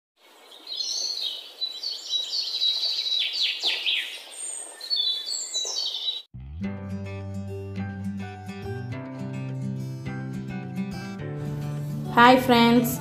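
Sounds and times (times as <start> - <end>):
songbird singing trills: 0.2 - 6.3
acoustic guitar music: 6.4 - 13.0.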